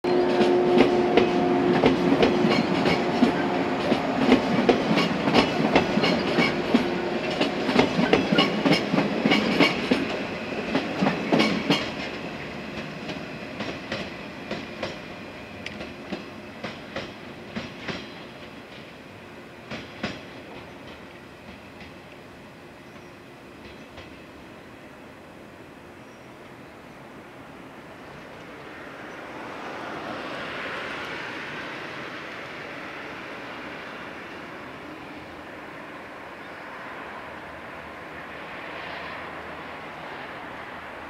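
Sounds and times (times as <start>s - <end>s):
train hum: 0.0s - 41.0s
train wheels clacking on rail joints: 0.1s - 19.0s, 19.6s - 22.2s, 22.9s - 24.3s.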